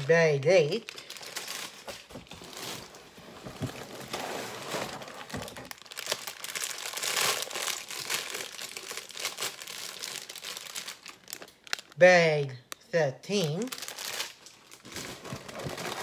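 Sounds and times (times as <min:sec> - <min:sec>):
plastic bags crinkling: 0:00.0 - 0:12.1, 0:13.4 - 0:16.0.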